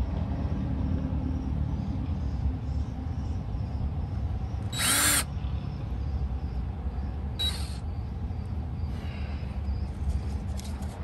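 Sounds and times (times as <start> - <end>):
cordless drill drilling: 4.7 - 5.3, 7.4 - 7.8.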